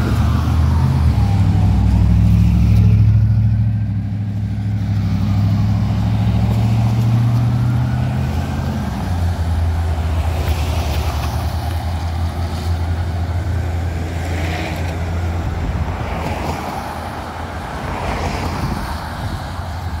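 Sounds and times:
distant ambulance siren wailing: 0.0s - 3.6s, 4.4s - 15.4s
car engine hum and road noise: 0.0s - 20.0s.

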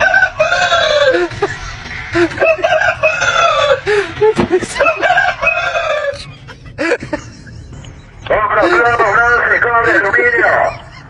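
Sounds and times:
rooster crowing: 0.0s - 1.3s, 2.4s - 3.9s, 4.8s - 6.3s.

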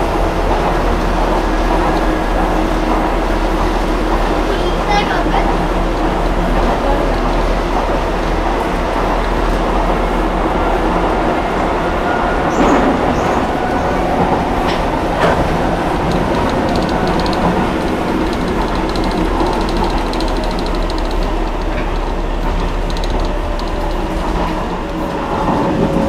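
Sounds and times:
rail clicks: 0.0s - 26.0s
train wheels rumbling on rail: 0.0s - 26.0s
faint rapid ticking: 15.5s - 25.0s.

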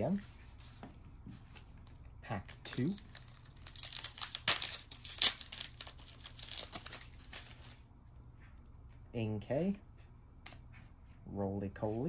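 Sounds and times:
foil wrapper tearing and crinkling: 2.7s - 7.8s.

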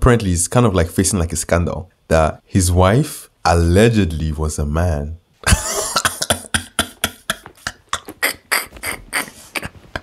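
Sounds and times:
man laughing hard: 5.4s - 10.0s.

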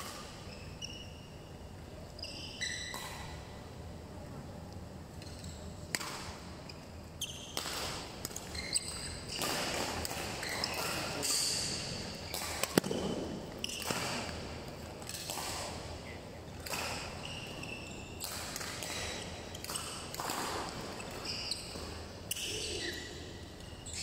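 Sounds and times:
shoes squeaking on court: 0.0s - 1.5s, 2.1s - 3.5s, 5.2s - 24.0s
rackets hitting shuttlecock: 5.9s - 6.5s, 7.4s - 16.0s, 16.6s - 22.9s.

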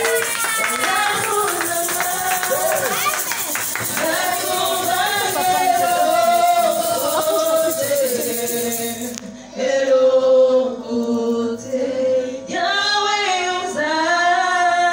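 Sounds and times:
voices singing a worship song: 0.0s - 14.9s
woman singing into a microphone: 0.2s - 3.0s.

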